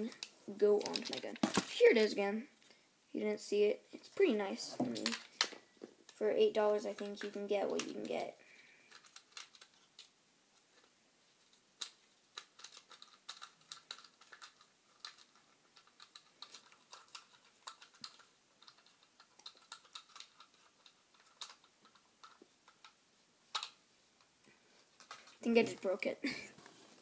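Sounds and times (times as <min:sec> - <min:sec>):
plastic parts clicking in hands: 0:04.9 - 0:06.2, 0:08.8 - 0:10.2, 0:11.5 - 0:24.3, 0:24.9 - 0:25.4.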